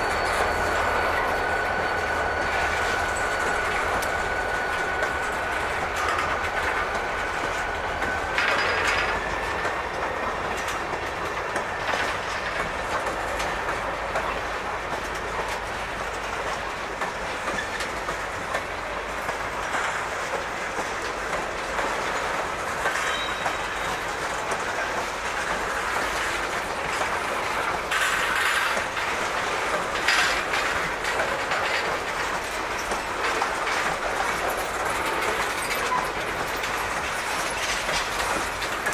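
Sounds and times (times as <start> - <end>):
train wheels clacking on rails: 0.0 - 38.9
wheel squeal: 22.9 - 24.2.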